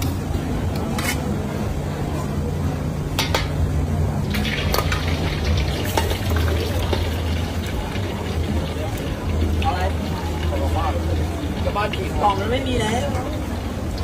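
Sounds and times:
eggs sizzling in hot oil: 4.3 - 14.0.

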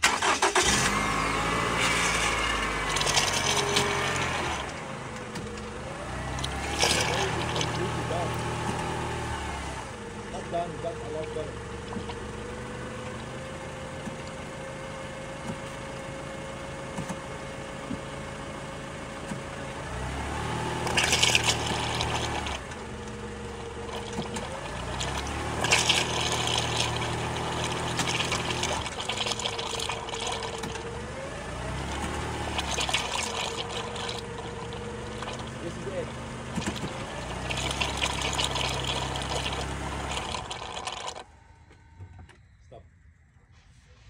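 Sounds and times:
engine idling: 0.0 - 44.0
fluid pouring into plastic tub: 1.6 - 5.5, 6.2 - 9.2, 11.2 - 12.3, 20.7 - 41.3.

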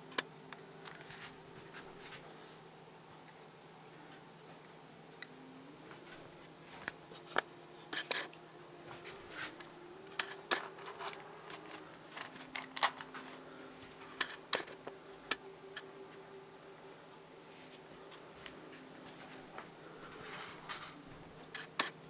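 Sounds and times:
faint steady hum: 0.0 - 22.0
rabbit crunching food pellets: 5.9 - 16.0, 17.4 - 22.0.

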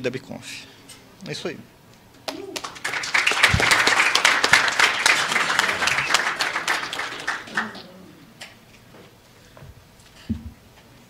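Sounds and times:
audience applauding: 2.2 - 8.0.

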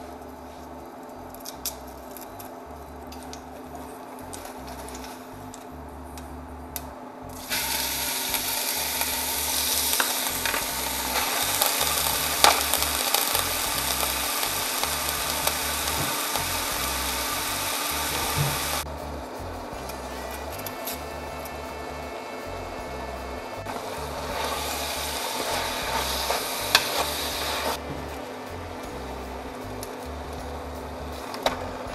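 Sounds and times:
meat sizzling in hot oil: 7.4 - 18.8, 23.7 - 27.8.

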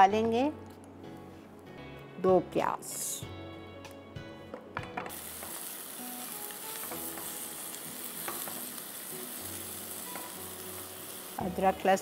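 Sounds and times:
onions sizzling in oil: 5.1 - 12.0.

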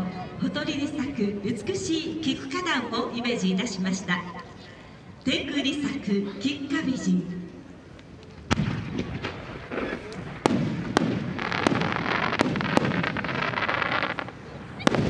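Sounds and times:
firework crackling: 8.4 - 15.0.

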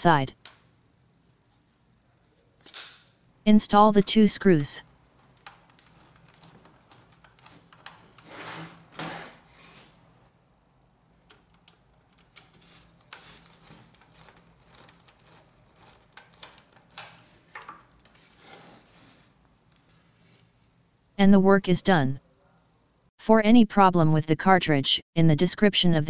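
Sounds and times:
screwdriver scraping and ticking: 5.2 - 8.3, 11.3 - 17.3.

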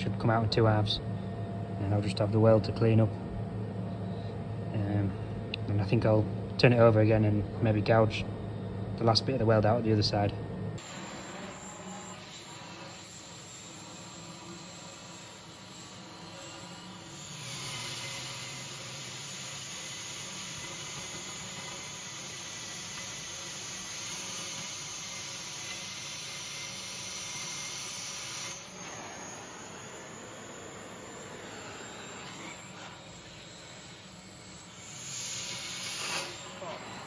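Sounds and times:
arc gouger air blast hissing: 14.6 - 37.0.

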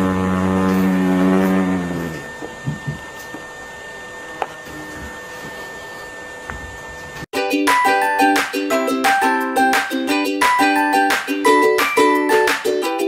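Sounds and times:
steady mechanical hum: 0.0 - 7.3.

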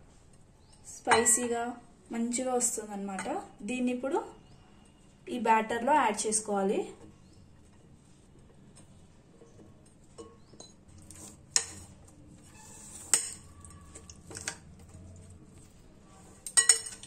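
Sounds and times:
spoon clinking ceramic bowls: 1.1 - 1.6, 16.4 - 17.0.

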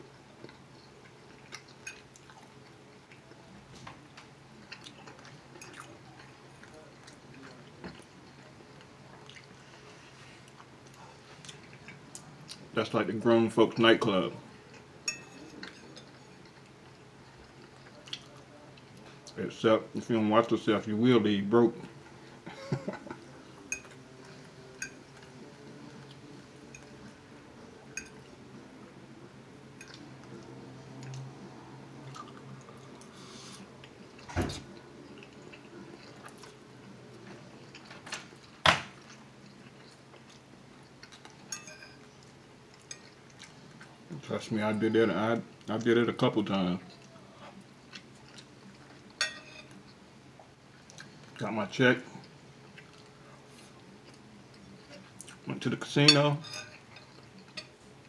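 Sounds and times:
faint room hum: 0.0 - 58.0
person chewing food: 0.4 - 3.4, 4.0 - 12.7, 32.0 - 44.1, 46.9 - 51.4, 52.2 - 55.5
fork clinking on plate: 15.0 - 16.1, 41.5 - 42.1, 49.2 - 49.7, 56.1 - 57.7.

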